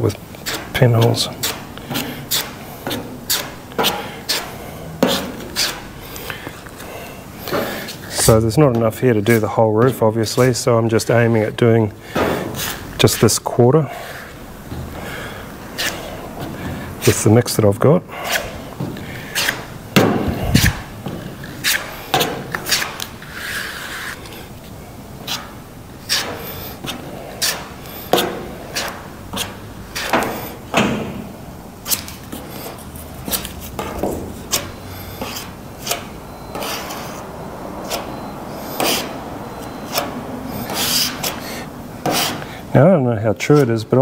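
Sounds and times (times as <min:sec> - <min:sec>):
spreader scraping filler on metal: 0:00.4 - 0:08.3, 0:12.1 - 0:13.4, 0:14.0 - 0:17.2, 0:18.1 - 0:24.5, 0:25.2 - 0:30.7, 0:31.8 - 0:42.6.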